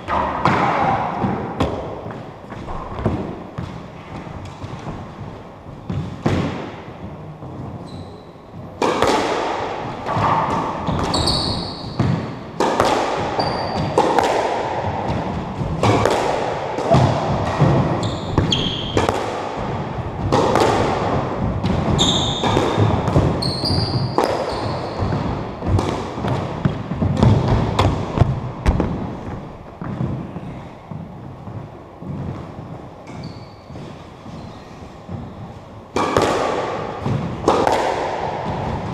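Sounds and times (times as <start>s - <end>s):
squash ball hitting rackets and walls: 0.0s - 38.9s
shoes squeaking on wooden floor: 7.6s - 8.4s, 10.8s - 12.0s, 18.0s - 19.0s, 21.9s - 25.3s, 33.1s - 35.5s.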